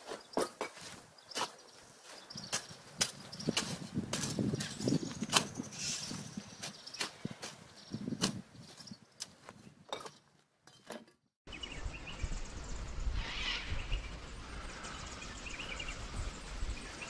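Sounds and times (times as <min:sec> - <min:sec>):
birds calling: 0:00.0 - 0:17.0
shovel scraping dirt: 0:02.4 - 0:08.5
low wind rumble: 0:11.5 - 0:17.0.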